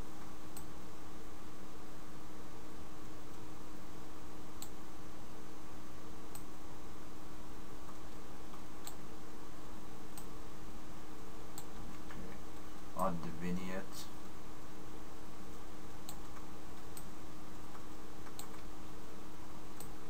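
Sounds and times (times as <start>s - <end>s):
computer mouse clicks: 0.2s - 0.7s, 6.3s - 6.5s, 7.8s - 9.0s, 10.1s - 10.3s, 11.5s - 12.2s, 16.0s - 18.7s, 19.7s - 20.0s.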